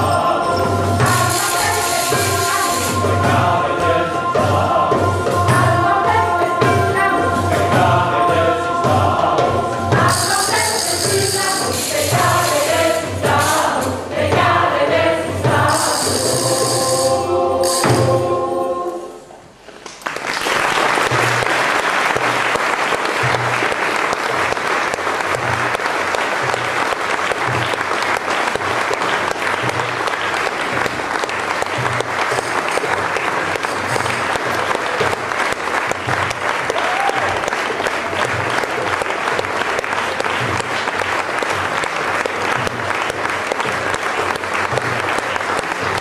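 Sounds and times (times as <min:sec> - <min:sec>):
tambourine jingling: 0:00.0 - 0:05.2, 0:09.9 - 0:14.2, 0:15.4 - 0:19.2, 0:31.5 - 0:35.5
choir singing: 0:00.0 - 0:19.4
audience applause: 0:19.7 - 0:46.0.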